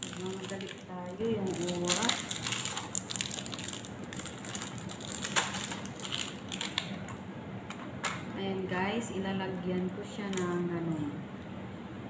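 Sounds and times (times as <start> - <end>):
chocolate pieces rattling in a box: 0.0 - 6.9.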